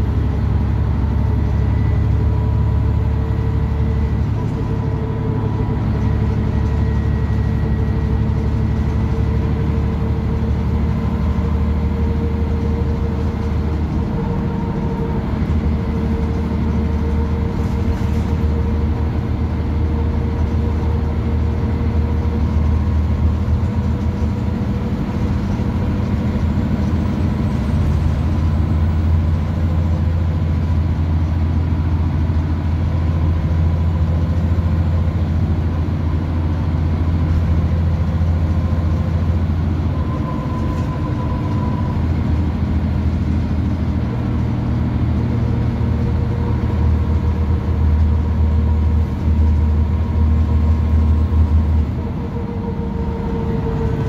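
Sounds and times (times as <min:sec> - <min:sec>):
thin steady whine: 0:00.0 - 0:30.3, 0:39.0 - 0:44.3, 0:48.9 - 0:54.0
bus engine drone: 0:00.0 - 0:54.0
road noise: 0:00.0 - 0:54.0.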